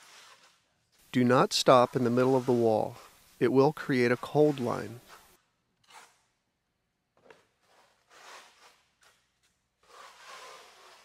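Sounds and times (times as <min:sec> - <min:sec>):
trowel swishing on wet stucco: 0:00.0 - 0:03.2, 0:04.0 - 0:05.4, 0:07.7 - 0:08.9, 0:09.8 - 0:11.0.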